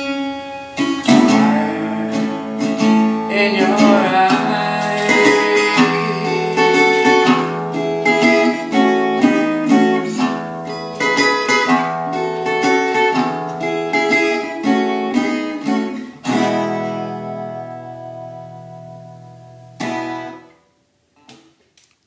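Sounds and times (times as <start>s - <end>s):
fingerpicked resonator guitar: 0.0s - 20.6s.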